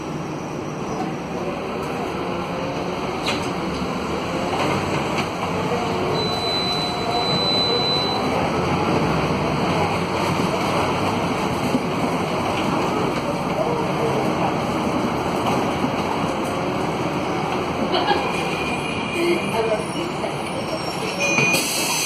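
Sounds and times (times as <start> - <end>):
bus diesel engine running: 0.0 - 22.0
road noise: 0.0 - 22.0.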